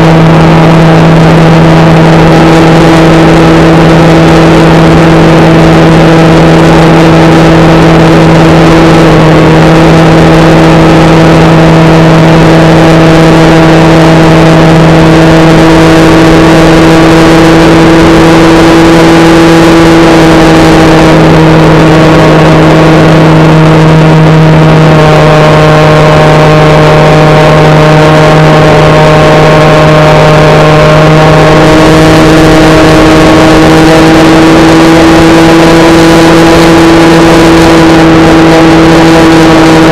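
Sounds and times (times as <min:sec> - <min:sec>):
electric motor and propeller droning: 0:00.0 - 0:39.9.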